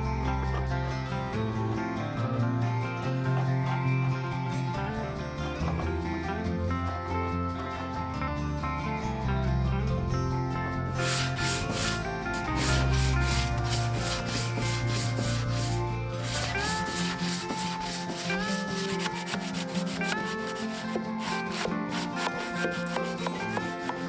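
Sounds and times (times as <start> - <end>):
music playing: 0.0 - 24.0
sandpaper rubbing on wood: 11.0 - 24.0.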